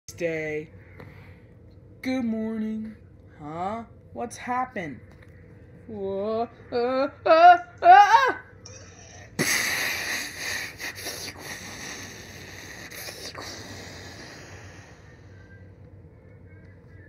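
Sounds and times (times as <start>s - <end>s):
breathy mouth hiss: 9.4s - 15.3s.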